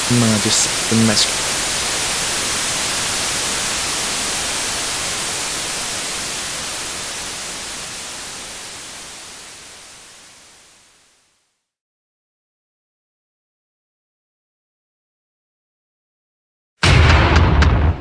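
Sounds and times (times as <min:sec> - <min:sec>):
static hiss: 0:00.0 - 0:11.7.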